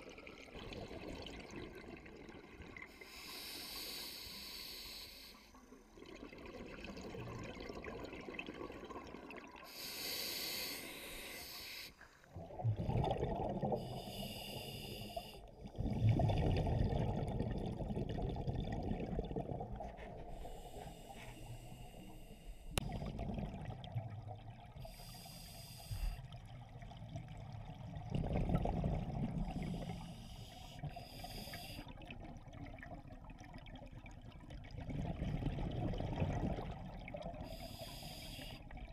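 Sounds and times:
hissing regulator inhalations: 3.0 - 5.6, 9.7 - 12.0, 13.8 - 15.4, 20.3 - 22.8, 24.9 - 26.2, 29.6 - 31.9, 37.4 - 38.7
bubbling exhalations: 12.4 - 14.0, 15.6 - 20.4.

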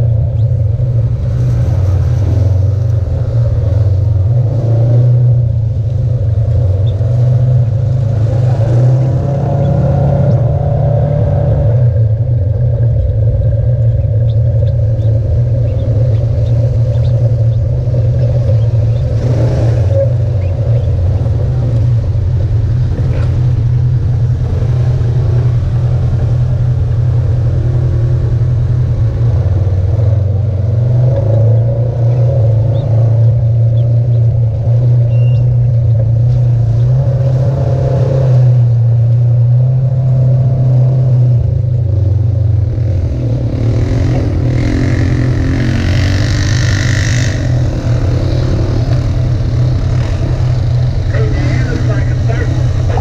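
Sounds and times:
utv engine droning: 0.0 - 53.0
higher-pitched engine sound: 42.6 - 53.0.

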